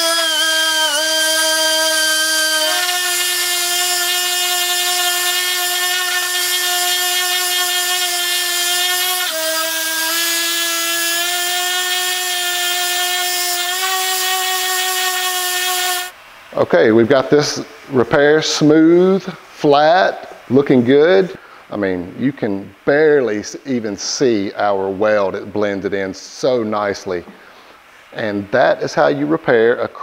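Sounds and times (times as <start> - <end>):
air sander whining: 0.0 - 16.2.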